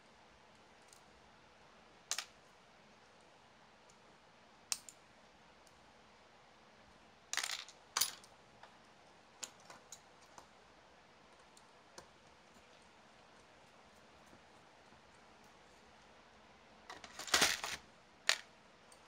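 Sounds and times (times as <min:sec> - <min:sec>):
small parts and tools clattering: 0:07.3 - 0:08.3, 0:16.9 - 0:19.0.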